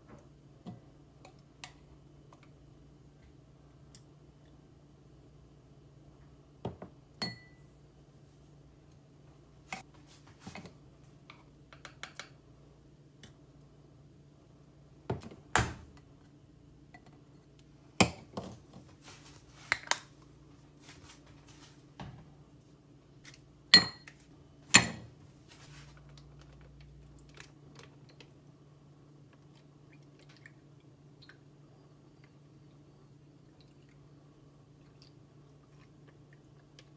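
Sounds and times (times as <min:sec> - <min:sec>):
faint steady hum: 0:00.0 - 0:36.9
spoon and glass clinking: 0:07.2 - 0:07.6, 0:23.8 - 0:24.1.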